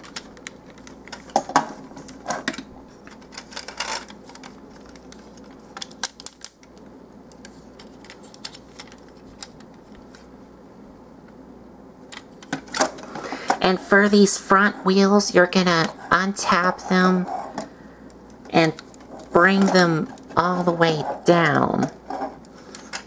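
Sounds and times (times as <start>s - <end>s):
plastic toy parts clicking: 3.3s - 6.7s.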